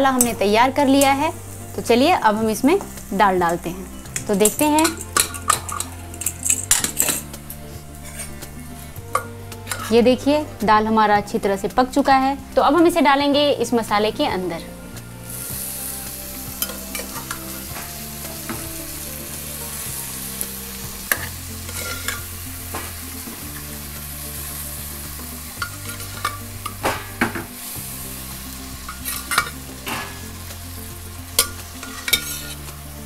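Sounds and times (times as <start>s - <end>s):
lentils sizzling in butter: 0.0s - 12.0s, 14.9s - 33.0s
metal spatula scraping pan: 4.2s - 10.1s, 21.0s - 23.4s, 25.6s - 27.8s, 28.8s - 30.4s, 31.4s - 32.8s.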